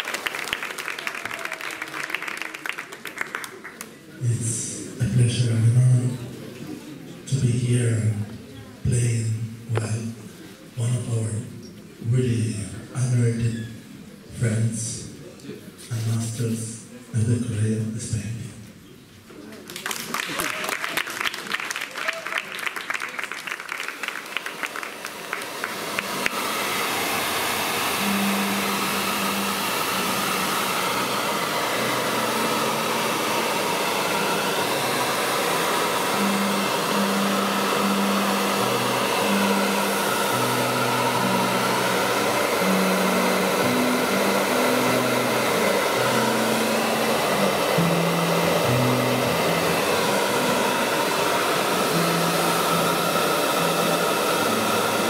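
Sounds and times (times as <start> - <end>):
hair dryer blowing: 0.0 - 3.6, 20.2 - 55.0
people clapping: 0.0 - 4.2, 19.5 - 26.4.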